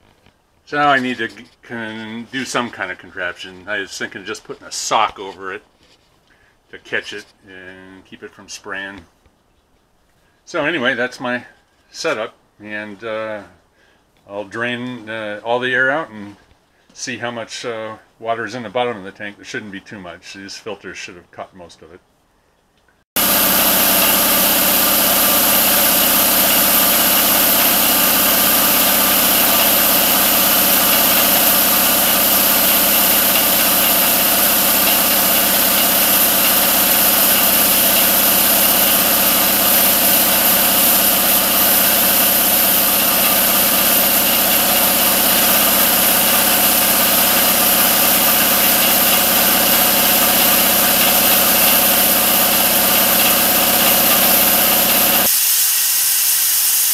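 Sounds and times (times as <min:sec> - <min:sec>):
air compressor running: 0:23.2 - 0:56.9.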